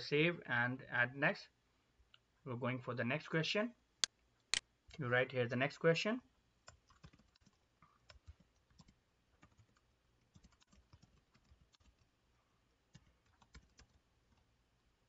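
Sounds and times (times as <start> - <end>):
computer keyboard typing: 6.7 - 12.1, 12.9 - 14.5.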